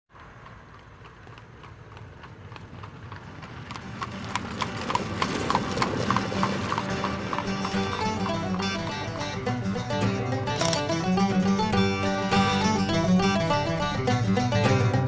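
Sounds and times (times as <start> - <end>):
horse hooves clip-clopping: 0.1 - 15.0
plucked-string music: 6.1 - 15.0.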